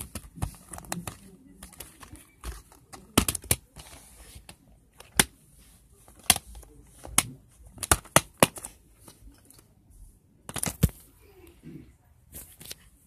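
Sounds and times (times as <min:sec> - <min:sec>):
plastic cases knocking and clicking: 0:06.1 - 0:08.7, 0:10.5 - 0:11.0.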